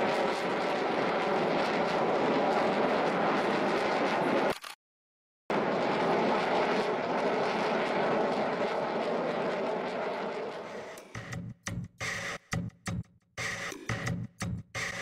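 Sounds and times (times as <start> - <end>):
fighter jet flying overhead: 0.0 - 4.6, 5.5 - 11.2.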